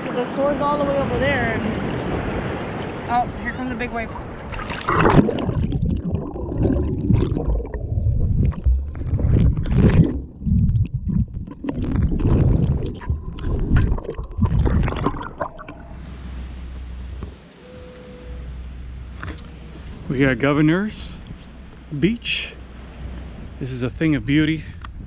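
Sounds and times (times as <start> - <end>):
low rumble and hiss: 0.0 - 25.0
water splashing and gurgling: 0.6 - 17.3.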